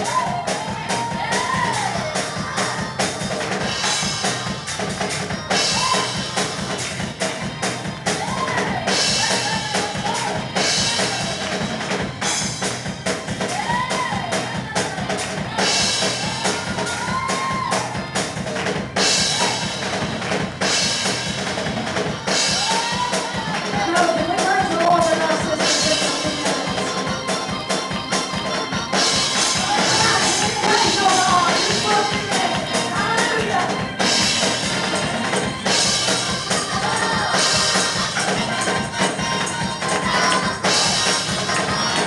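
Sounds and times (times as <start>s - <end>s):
drum kit with crashing cymbals: 0.0s - 42.0s
melody line: 24.2s - 39.7s.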